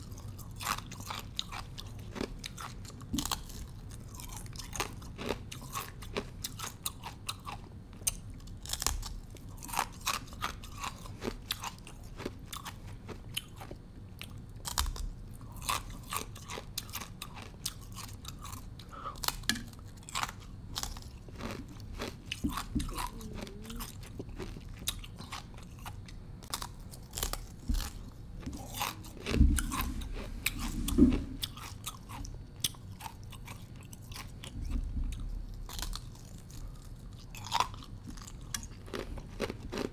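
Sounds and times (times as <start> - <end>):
ice crunching while chewed: 0.0 - 39.9.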